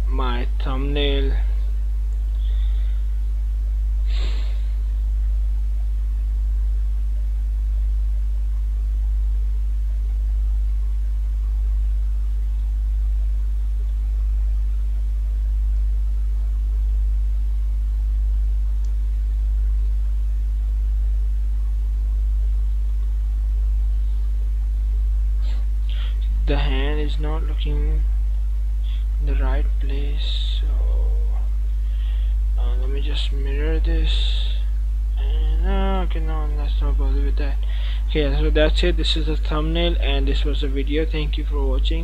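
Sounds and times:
low electrical hum: 0:00.0 - 0:42.0
short breath-like noise: 0:04.0 - 0:04.8.

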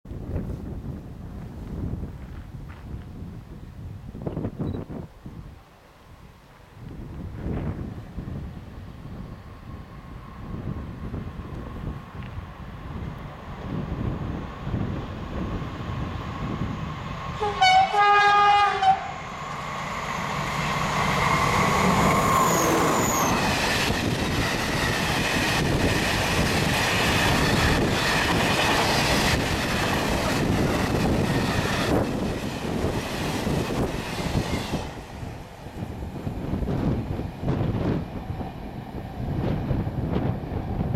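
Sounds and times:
diesel locomotive engine: 0:00.1 - 0:40.9
train horn blast: 0:17.4 - 0:19.2.

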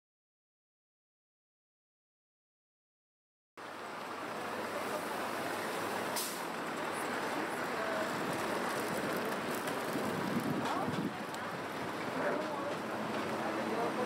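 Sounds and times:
passing vehicles: 0:03.6 - 0:14.0
short hiss: 0:06.1 - 0:06.5.

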